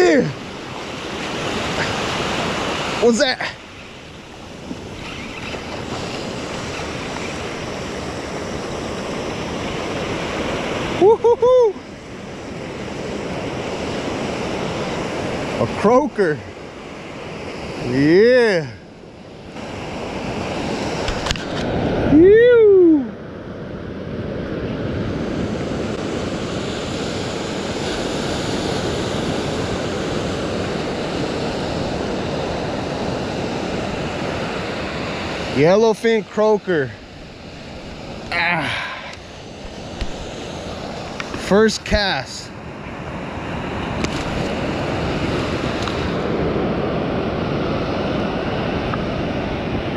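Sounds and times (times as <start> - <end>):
surf washing up beach: 0.0 - 49.9
loud rising and falling calls: 4.8 - 7.8.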